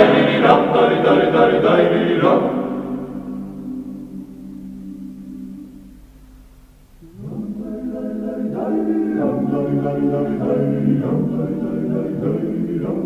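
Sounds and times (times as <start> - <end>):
choir singing in parts: 0.0 - 6.0, 7.0 - 13.0
low vocal drone: 0.0 - 13.0.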